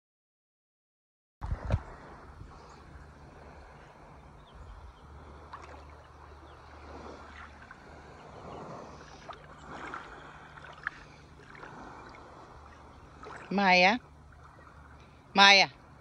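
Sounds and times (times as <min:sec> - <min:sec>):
low steady rumble: 0:01.4 - 0:16.0
seawater sloshing and lapping: 0:01.4 - 0:16.0
dogs splashing in water: 0:05.3 - 0:15.0.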